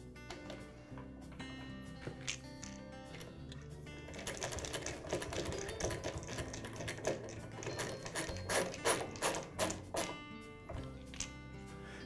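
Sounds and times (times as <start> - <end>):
screwdriver clicking: 4.2 - 10.2.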